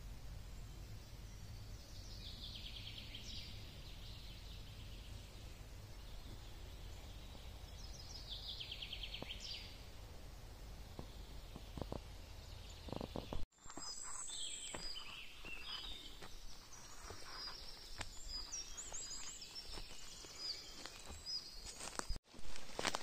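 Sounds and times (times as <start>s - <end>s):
songbirds chirping and whistling: 0.5s - 9.9s, 10.6s - 22.2s
footsteps on twigs and leaves: 12.9s - 23.0s.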